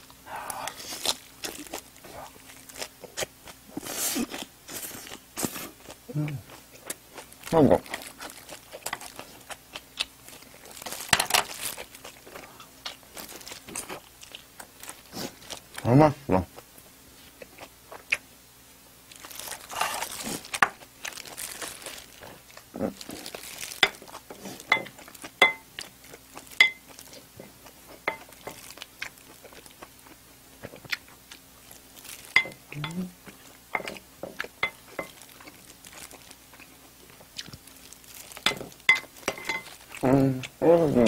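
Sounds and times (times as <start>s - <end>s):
person humming: 0.3s - 0.9s, 6.1s - 6.5s, 32.7s - 33.2s, 40.0s - 41.0s
paper napkin crinkling: 19.1s - 22.3s.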